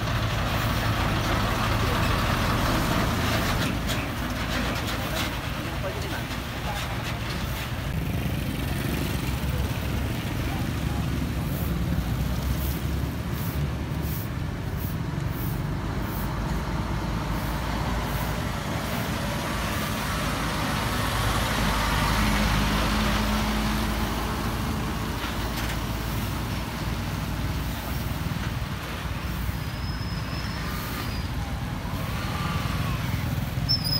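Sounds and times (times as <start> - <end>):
diesel trucks passing: 0.0 - 33.9
motorbikes passing: 7.8 - 25.2, 30.4 - 33.9.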